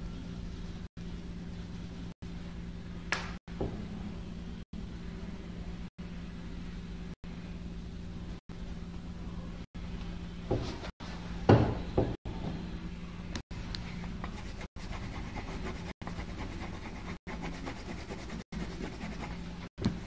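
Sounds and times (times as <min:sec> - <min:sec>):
steady low hum: 0:00.0 - 0:20.0
pencil scratching on paper: 0:14.3 - 0:19.4.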